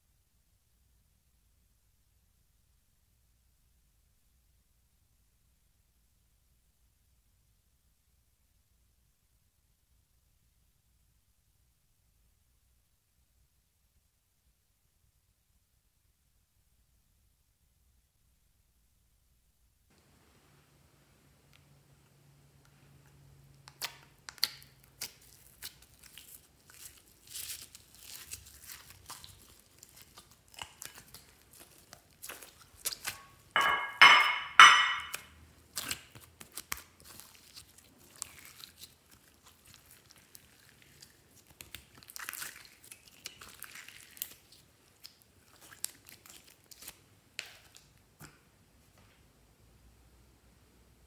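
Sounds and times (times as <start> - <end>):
slime tearing and crackling: 23.8 - 33.5, 35.6 - 47.9.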